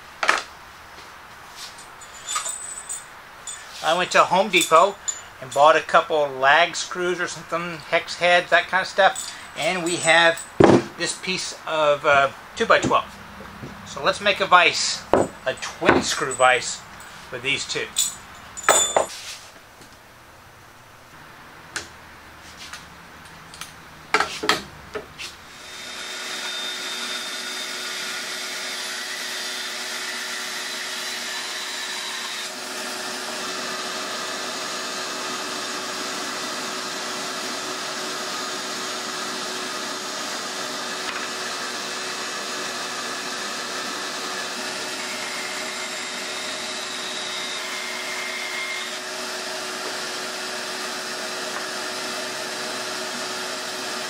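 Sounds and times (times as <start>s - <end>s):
knocks and clatters: 10.6s - 11.0s
band saw running: 25.5s - 54.0s.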